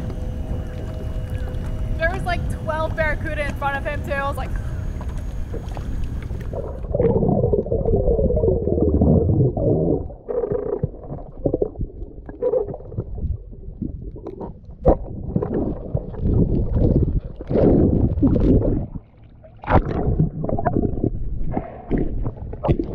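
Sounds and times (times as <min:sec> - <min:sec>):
wind: 0:00.0 - 0:07.2
muffled underwater water rushing: 0:00.0 - 0:22.9.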